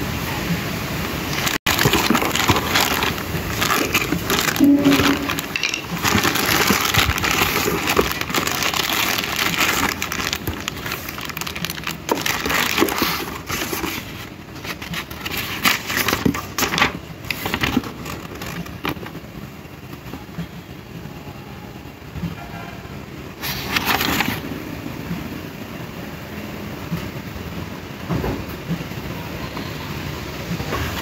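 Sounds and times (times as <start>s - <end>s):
plastic bag crinkling: 1.2s - 19.2s, 23.4s - 24.4s
cardboard box rustling: 1.3s - 19.2s, 23.4s - 24.4s
paper being handled: 1.3s - 19.2s, 23.4s - 24.4s.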